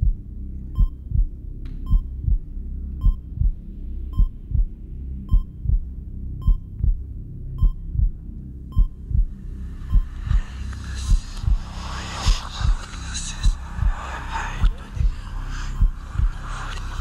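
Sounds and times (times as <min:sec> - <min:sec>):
low hum: 0:00.0 - 0:17.0
heart monitor beep: 0:00.8 - 0:01.1, 0:01.9 - 0:02.2, 0:03.0 - 0:03.5, 0:04.1 - 0:04.4, 0:05.3 - 0:05.8, 0:06.4 - 0:06.9, 0:07.6 - 0:08.1, 0:08.7 - 0:09.3
heartbeat double thump: 0:00.8 - 0:08.2, 0:08.8 - 0:11.7.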